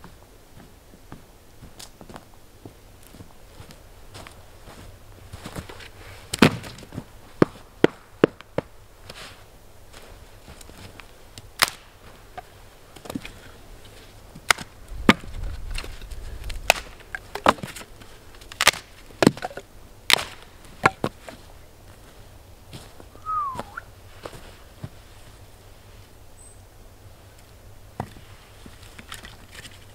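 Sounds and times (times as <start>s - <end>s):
firewood cracking and chopping: 6.3s - 8.7s, 11.5s - 21.4s.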